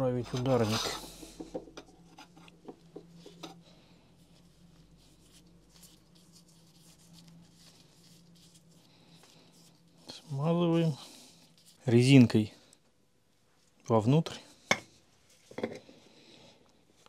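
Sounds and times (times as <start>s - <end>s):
low steady hum: 0.0s - 17.0s
gloved hands rubbing: 4.2s - 12.5s.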